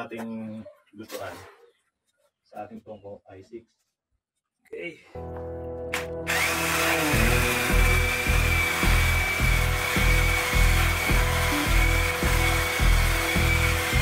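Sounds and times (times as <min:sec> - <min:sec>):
background music with beat: 0:05.2 - 0:14.0
electric chainsaw cutting a log: 0:05.9 - 0:14.0.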